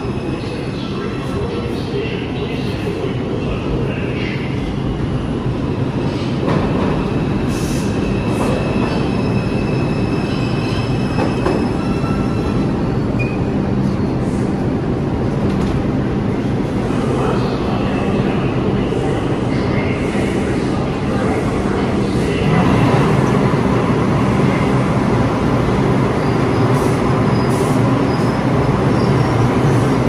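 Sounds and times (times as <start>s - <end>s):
subway train rumble: 0.0s - 30.0s.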